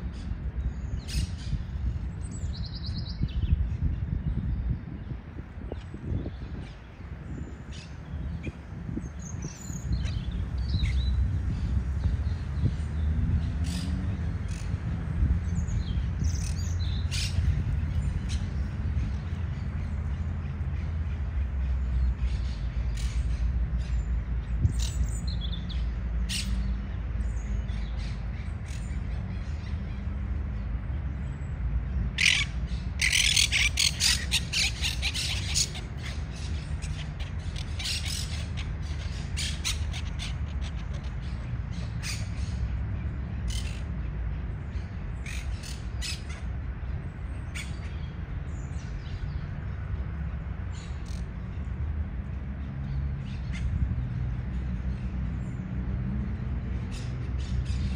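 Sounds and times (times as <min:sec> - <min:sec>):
parakeets squawking: 0:32.2 - 0:41.4.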